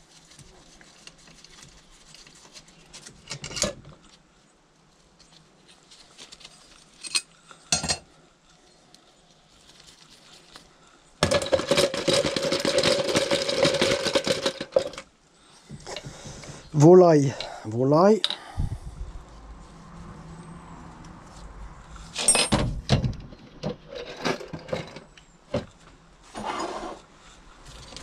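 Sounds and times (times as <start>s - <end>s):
metal parts and tools clinking: 3.2s - 4.0s, 6.7s - 8.1s, 22.1s - 22.9s.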